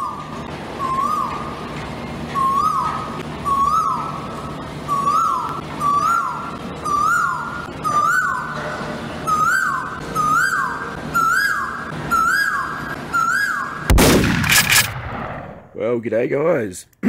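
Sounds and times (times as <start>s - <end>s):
bird whistled call: 0.0s - 1.5s, 2.3s - 13.9s
gunshot blast: 13.9s - 15.6s.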